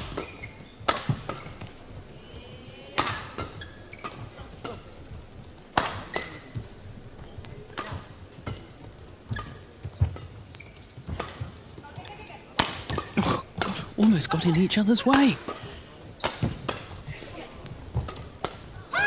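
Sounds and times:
rackets striking shuttlecock: 0.0s - 1.7s, 2.9s - 4.8s, 5.7s - 6.5s, 7.7s - 8.7s, 9.3s - 14.4s, 16.2s - 17.0s, 17.6s - 18.8s
shoes squeaking on court: 0.0s - 19.0s.

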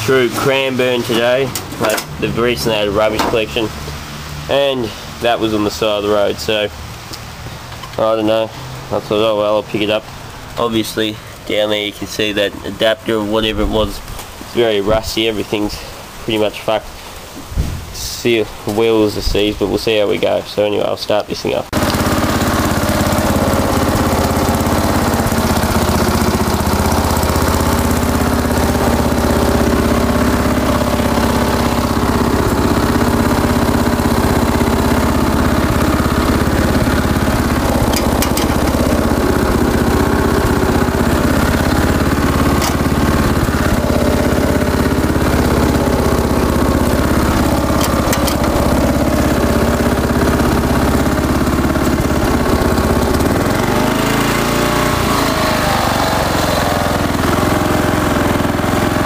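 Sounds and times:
ride-on mower engine running: 0.0s - 13.9s, 21.7s - 59.0s.

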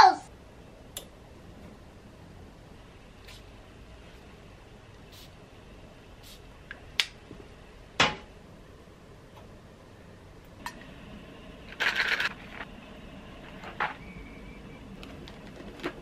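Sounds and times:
gum pack rattle: 11.8s - 12.7s.

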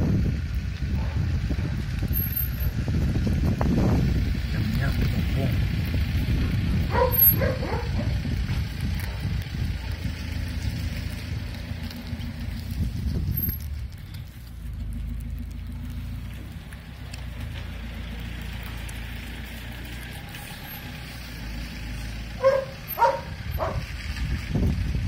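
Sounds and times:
vehicle rumble: 0.0s - 25.0s
dog barking: 6.9s - 8.2s, 22.4s - 23.8s.

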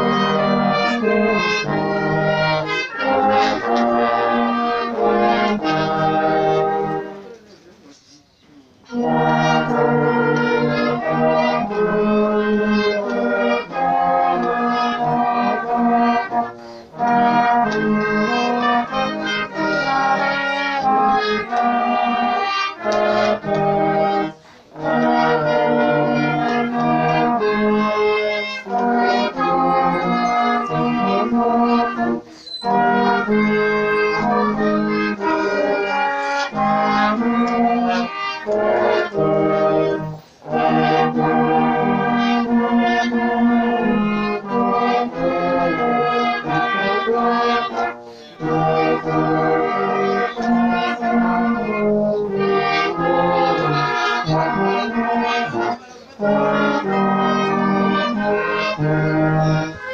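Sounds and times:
brass ensemble playing chords: 0.0s - 7.6s, 8.7s - 59.9s.

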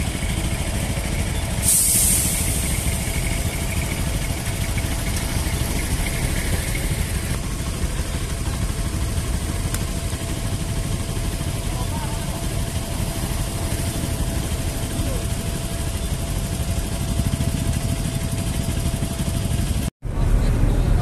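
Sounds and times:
motorcycle engines idling: 0.0s - 21.0s
loud hiss: 1.1s - 4.9s.

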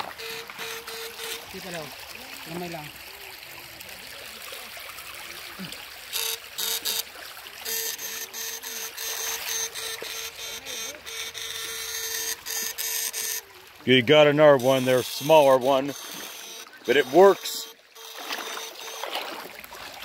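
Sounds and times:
electric shock rod buzzing: 0.0s - 1.8s, 6.1s - 13.5s, 14.3s - 19.4s
trickling stream: 0.0s - 20.0s.

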